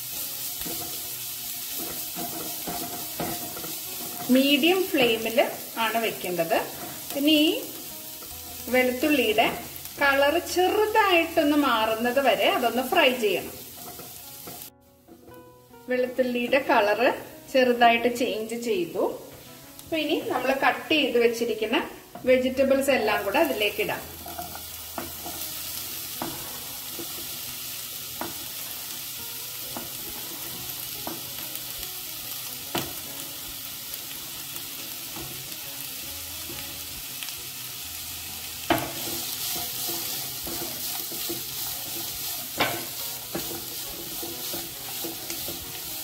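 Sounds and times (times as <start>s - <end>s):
spatula stirring vegetables: 0.0s - 15.5s, 22.0s - 46.0s
oil and garlic sizzling in pan: 0.0s - 46.0s
sharp knocks against pan: 42.6s - 43.6s.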